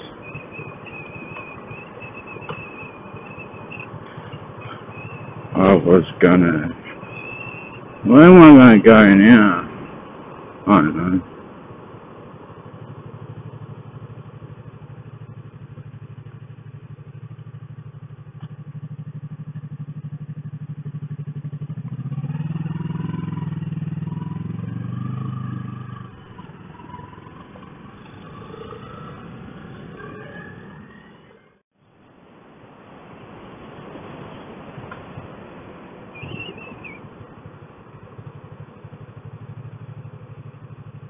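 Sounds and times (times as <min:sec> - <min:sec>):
motorcycle engine running: 0:00.0 - 0:06.2, 0:11.3 - 0:30.3, 0:36.2 - 0:41.0.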